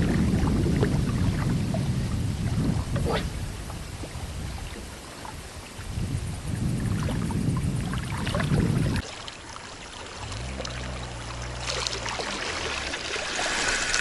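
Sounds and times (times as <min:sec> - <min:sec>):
wind buffeting microphone: 0:00.0 - 0:09.1
water trickling: 0:00.0 - 0:14.0
low engine hum: 0:10.0 - 0:14.0.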